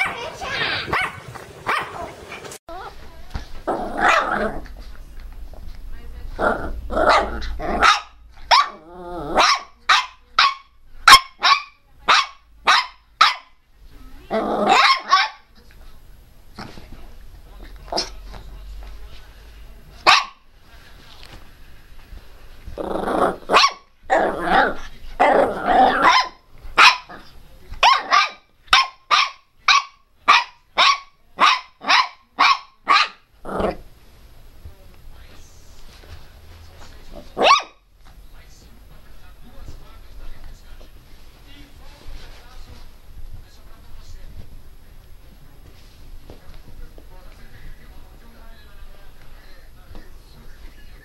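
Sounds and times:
dog barking fiercely: 0.0s - 2.3s, 3.7s - 4.6s, 6.5s - 13.6s, 14.6s - 15.5s, 20.0s - 20.4s, 23.3s - 33.3s, 37.4s - 37.8s
dog growling: 3.6s - 5.1s, 6.3s - 7.9s, 8.6s - 9.5s, 14.3s - 14.8s, 22.7s - 23.5s, 24.1s - 26.1s, 33.4s - 33.8s.

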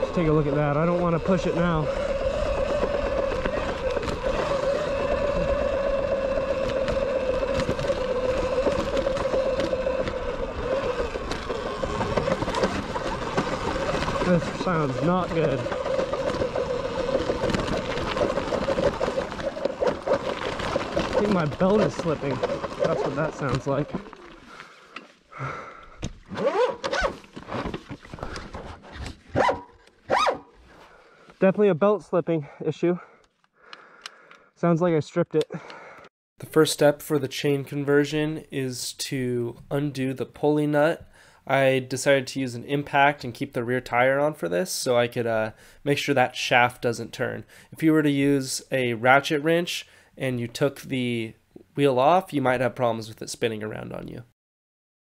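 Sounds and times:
electric motor whine: 0.0s - 24.3s
tyre and trail noise: 0.0s - 31.8s.

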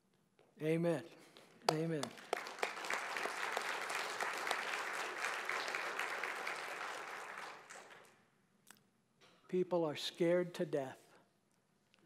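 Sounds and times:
congregation applauding: 1.7s - 8.2s.

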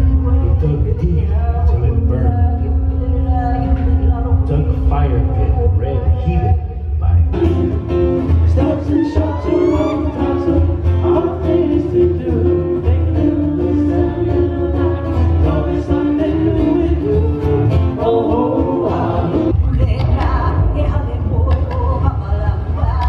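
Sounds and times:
person singing: 0.0s - 23.0s
strummed acoustic guitars: 7.1s - 20.5s.

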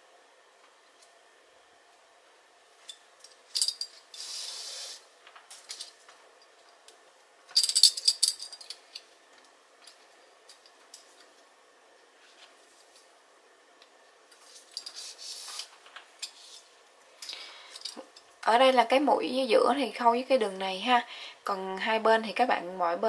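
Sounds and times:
steady hiss: 3.5s - 5.9s, 14.1s - 18.0s.

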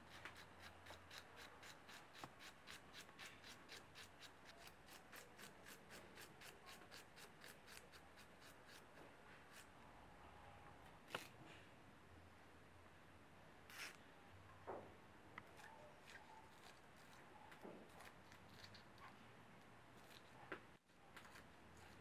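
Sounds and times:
knife slicing onion: 0.0s - 9.7s, 21.2s - 22.0s.

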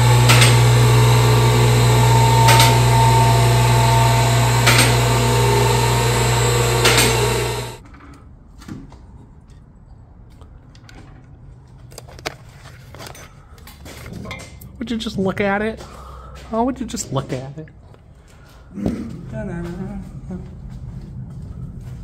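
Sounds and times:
power tool motor running: 0.0s - 7.8s
sharp hits: 0.0s - 7.8s.

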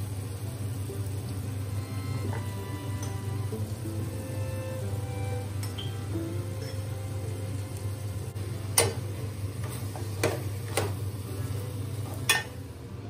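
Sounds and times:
metal spoon clinking on pot: 12.3s - 12.6s.

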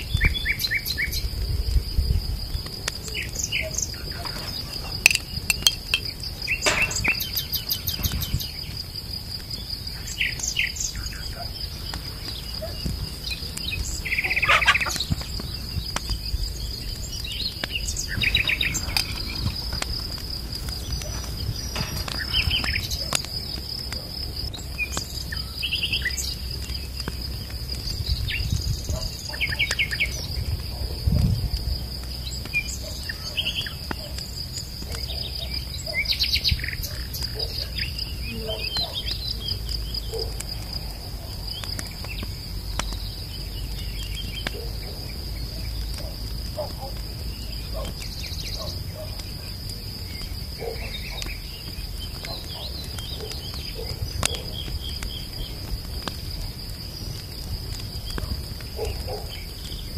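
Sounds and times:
high insect trill: 0.0s - 59.9s
bird chirps: 3.0s - 8.7s, 10.0s - 19.8s, 34.9s - 40.3s.

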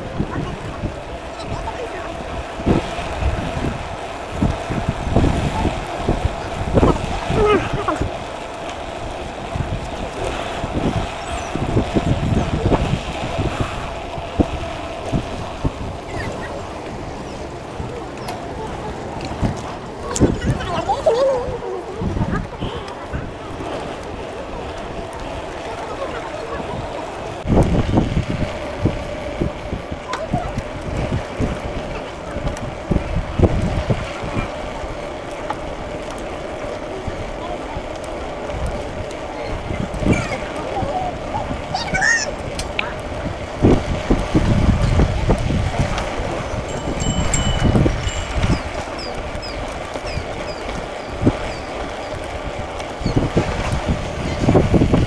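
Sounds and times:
wind buffeting microphone: 0.0s - 55.0s
thin steady tone: 46.7s - 49.2s.

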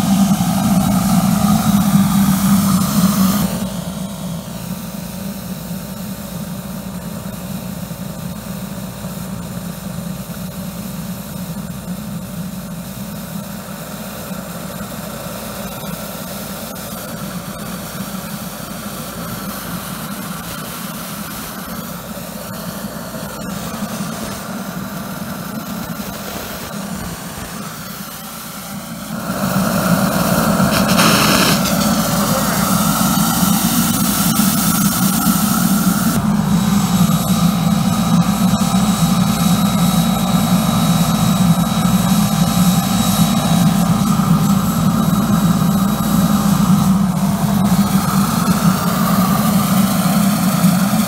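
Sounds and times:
boiler burner and pump: 0.0s - 51.0s
steam jet hissing: 19.1s - 38.1s.

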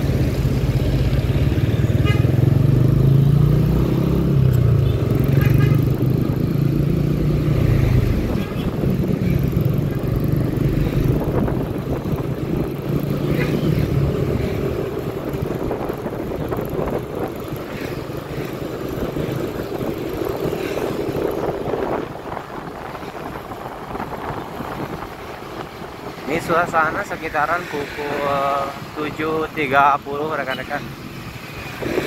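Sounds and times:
other traffic: 0.0s - 32.0s
road noise: 0.0s - 32.0s
wind noise: 5.4s - 27.0s, 31.3s - 32.0s.

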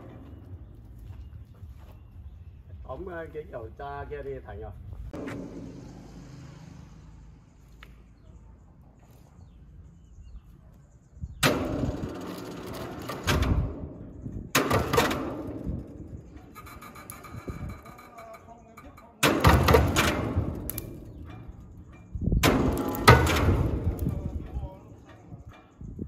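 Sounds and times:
loud bangs with clattering: 0.0s - 1.0s, 5.1s - 6.7s, 11.4s - 26.0s.

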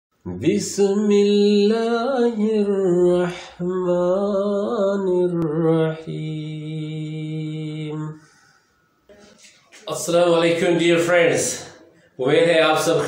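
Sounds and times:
person chanting unaccompanied: 0.2s - 8.2s.

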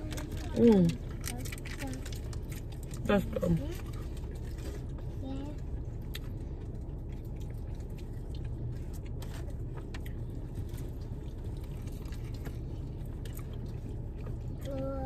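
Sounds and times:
small clicks and scrapes: 0.0s - 5.6s
people chewing and eating: 0.0s - 15.0s
steady low rumble: 0.0s - 15.0s.

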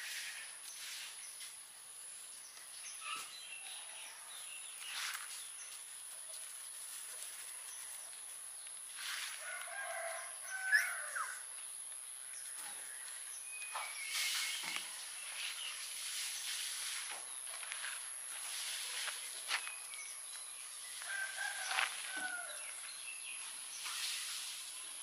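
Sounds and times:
high-pitched hiss: 0.0s - 3.5s, 13.2s - 21.2s, 23.0s - 25.0s
rooster crowing: 9.3s - 11.4s, 21.0s - 22.8s.

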